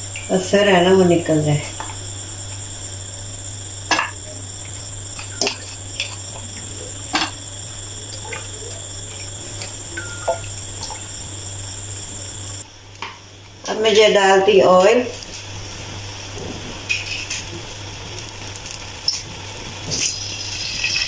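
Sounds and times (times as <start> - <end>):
steady hum: 0.0 - 21.0
broth trickling: 1.5 - 12.7, 14.8 - 21.0.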